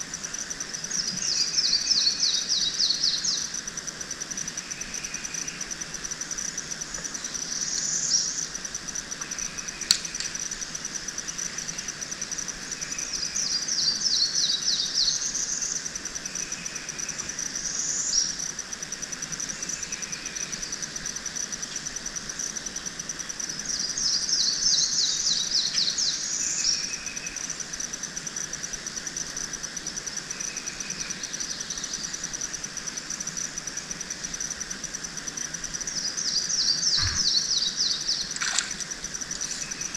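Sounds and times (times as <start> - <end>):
high insect trill: 0.0 - 39.9
birds singing: 36.0 - 38.8.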